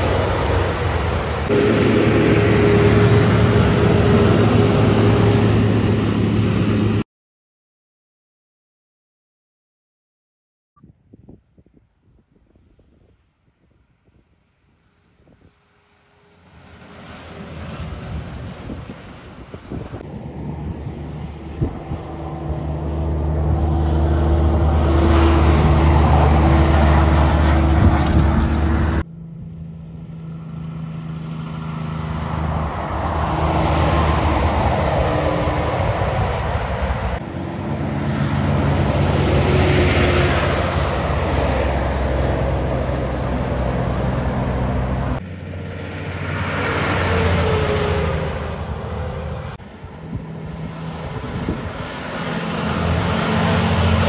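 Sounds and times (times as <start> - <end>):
truck diesel engine: 0.0 - 7.0, 15.4 - 54.0
tyre and road noise: 0.0 - 7.0, 14.0 - 54.0.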